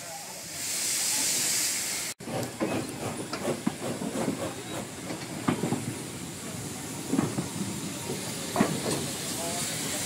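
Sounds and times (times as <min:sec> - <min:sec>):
steam hissing: 0:00.0 - 0:10.0
clanks and knocks: 0:02.3 - 0:05.9, 0:08.5 - 0:09.1.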